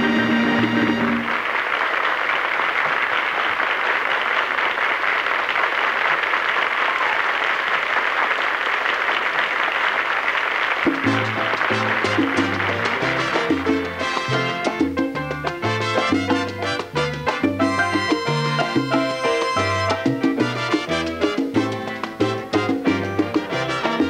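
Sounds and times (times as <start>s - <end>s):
salsa band with brass and bass: 0.0s - 1.5s, 10.8s - 24.0s
audience applauding: 0.0s - 24.0s.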